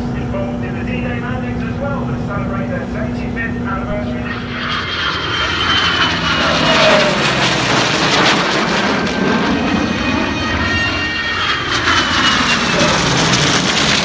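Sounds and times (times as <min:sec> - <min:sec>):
jet flying past: 0:03.8 - 0:14.0.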